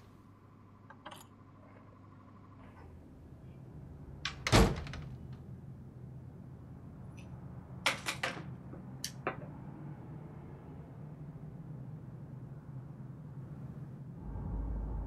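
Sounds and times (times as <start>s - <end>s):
low room hum: 0.0s - 15.0s
door closing with heavy thunk: 4.5s - 5.1s.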